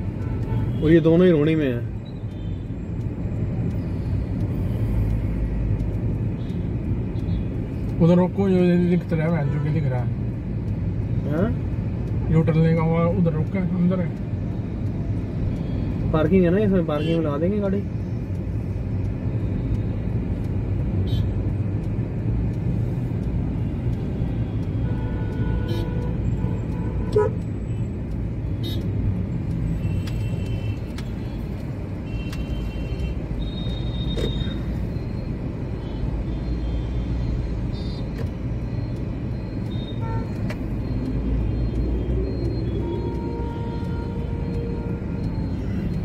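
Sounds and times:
car horn toots: 39.8s - 40.4s.

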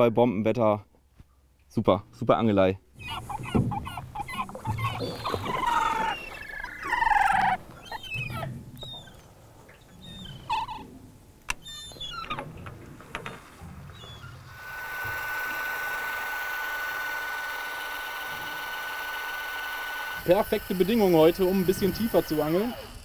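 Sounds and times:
gulls calling: 2.9s - 23.0s.

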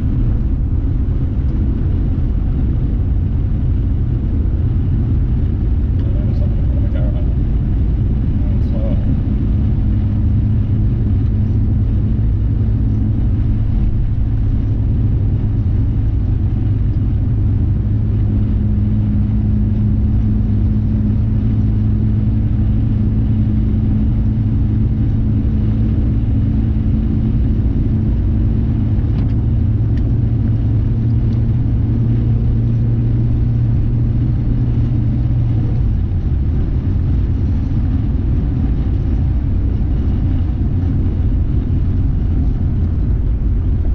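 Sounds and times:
car road and engine rumble: 0.0s - 43.9s.

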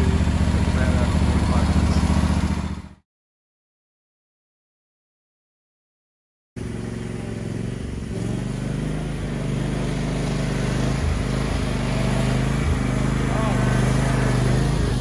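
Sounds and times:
lawn tractor engine running: 0.0s - 3.0s, 6.6s - 15.0s.

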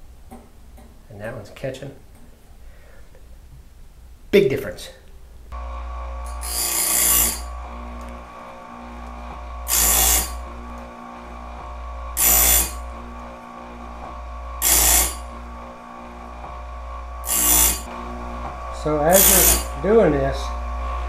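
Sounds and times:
electric sharpener running: 5.6s - 21.0s
grinding wheel sharpening saw teeth: 6.3s - 8.2s, 9.6s - 10.7s, 12.2s - 12.9s, 14.0s - 15.6s, 17.2s - 17.9s, 19.0s - 19.8s.

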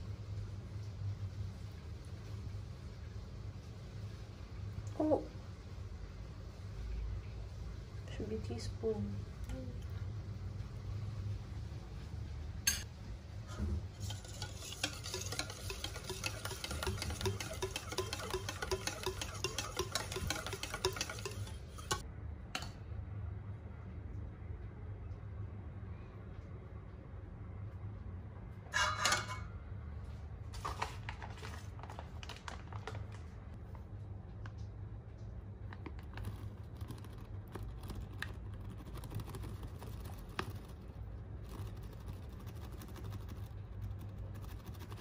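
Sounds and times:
steady low hum: 0.0s - 30.6s, 33.3s - 45.0s
utensil stirring in bowl: 13.9s - 22.1s, 35.7s - 45.0s
scrape or rustle: 30.5s - 32.0s.

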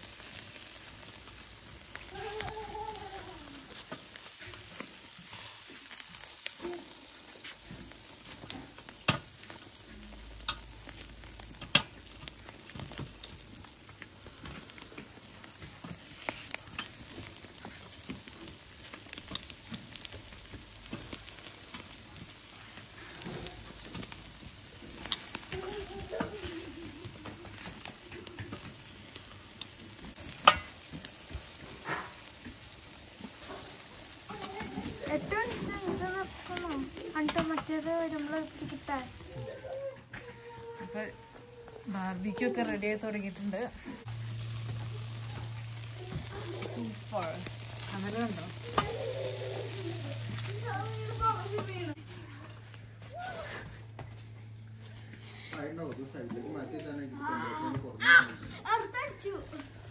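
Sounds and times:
meat sizzling on grill: 0.0s - 59.9s
metal tongs clicking on grate: 30.4s - 30.8s.

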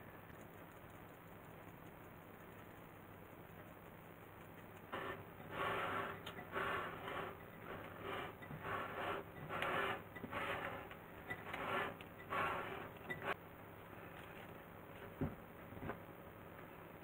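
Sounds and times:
spatula scraping batter in glass bowl: 4.8s - 13.4s.

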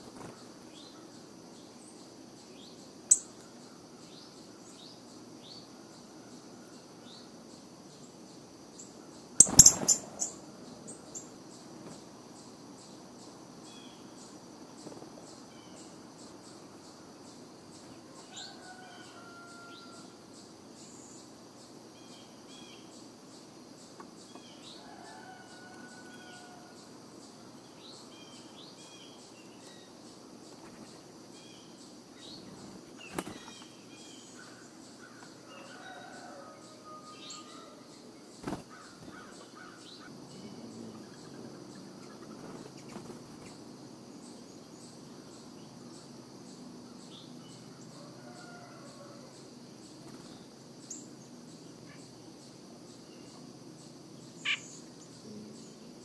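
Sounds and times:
pulsing high insect drone: 0.0s - 56.0s
bird calls: 8.8s - 11.3s, 54.4s - 54.9s.

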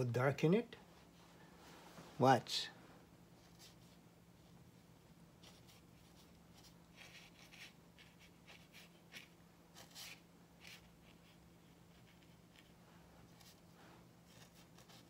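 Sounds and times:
brush swishing across paper: 5.4s - 15.0s.

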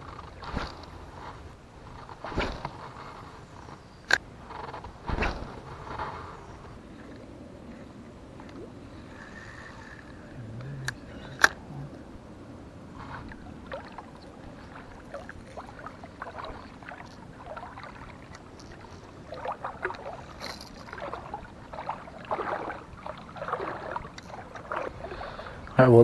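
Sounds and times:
small clicks and rustles: 18.2s - 19.1s, 19.8s - 21.1s, 24.1s - 24.7s.

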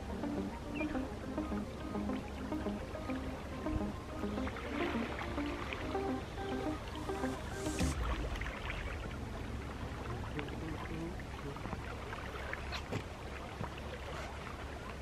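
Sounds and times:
steady low rumble: 6.7s - 11.9s.

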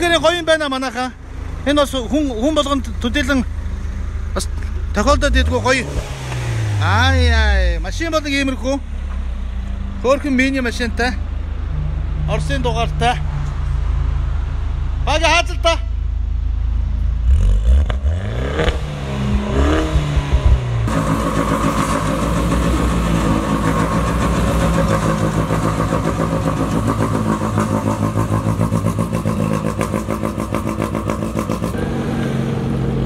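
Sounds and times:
go-kart engine revving: 1.3s - 7.8s, 17.3s - 33.0s.

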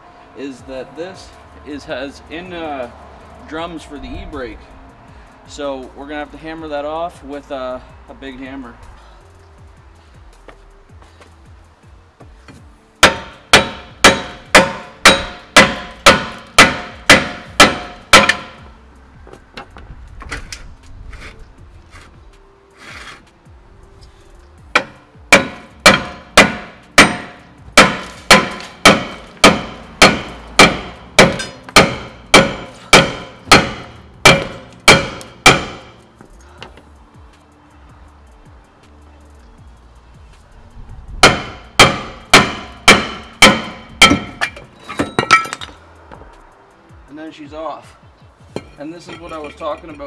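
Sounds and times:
hammer striking metal rotor: 13.0s - 18.6s, 24.7s - 36.0s, 41.2s - 45.6s.

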